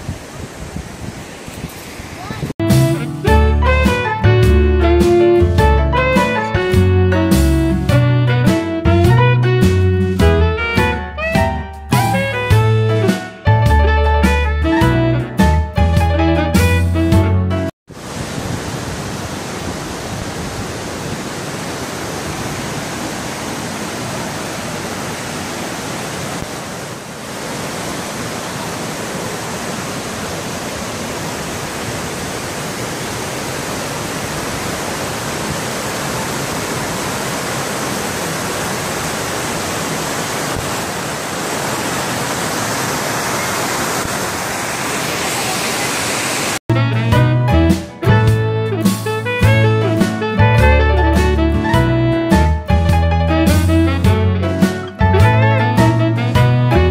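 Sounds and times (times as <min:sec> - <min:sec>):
waterfall rushing: 0:00.0 - 0:03.2, 0:17.9 - 0:46.6
guitar music: 0:02.6 - 0:17.7, 0:46.7 - 0:56.9.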